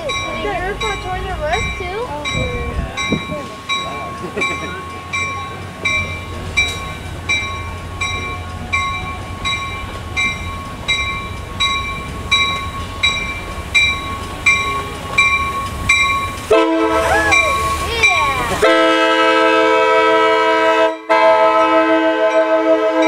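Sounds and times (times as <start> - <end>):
train bell ringing: 0.0 - 19.0, 20.9 - 23.0
low rumble of train moving: 0.0 - 23.0
train horn blowing: 16.5 - 17.8, 18.6 - 23.0.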